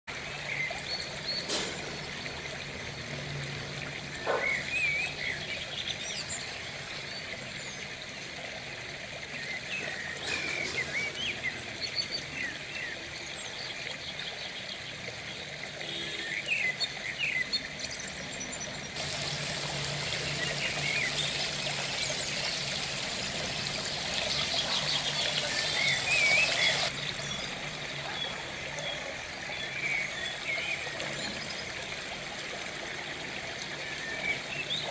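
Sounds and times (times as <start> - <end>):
trickling water: 0.0 - 34.9.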